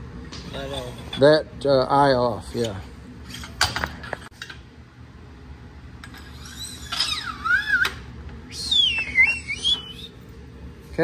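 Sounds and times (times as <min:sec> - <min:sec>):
high falling whistle: 0:06.6 - 0:10.2.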